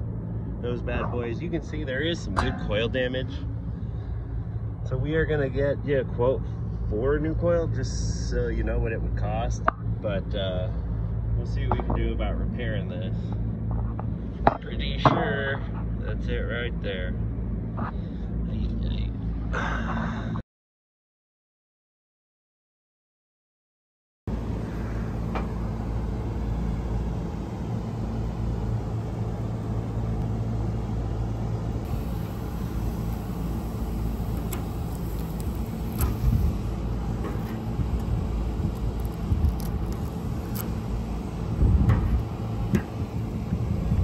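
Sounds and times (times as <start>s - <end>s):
low machine hum: 0.0s - 20.4s, 24.3s - 44.0s
pliers clicking on metal fins: 37.3s - 40.7s.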